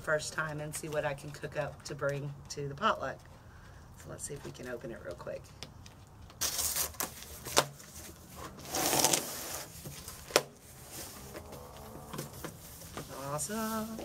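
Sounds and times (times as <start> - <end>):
cardboard tearing and scraping: 6.4 - 14.0.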